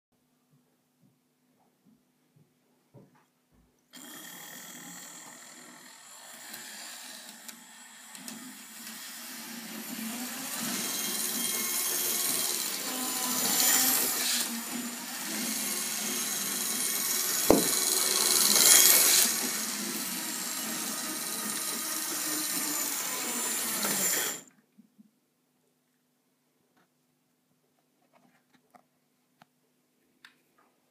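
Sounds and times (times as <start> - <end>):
model train motor whirring: 4.0 - 24.5.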